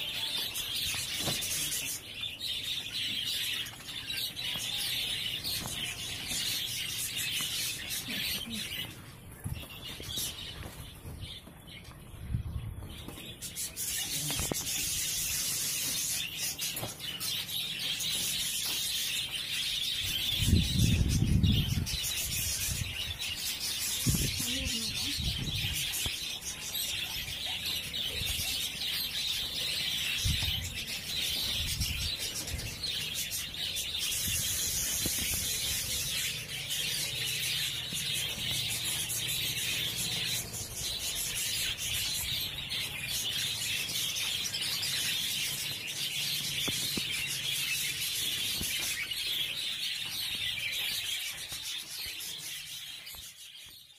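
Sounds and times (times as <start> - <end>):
budgerigars chattering and chirping: 13.1 - 53.9.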